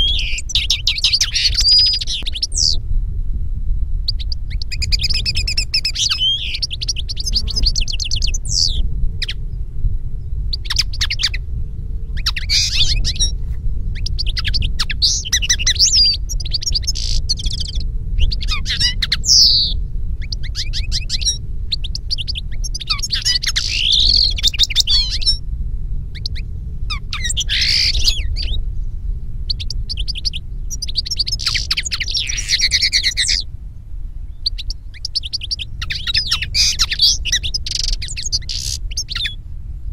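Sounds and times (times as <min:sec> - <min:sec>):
birds twittering and trilling: 0:00.0 - 0:02.8, 0:04.0 - 0:25.5, 0:26.1 - 0:33.5, 0:34.2 - 0:39.4
steady low rumble: 0:00.0 - 0:39.9.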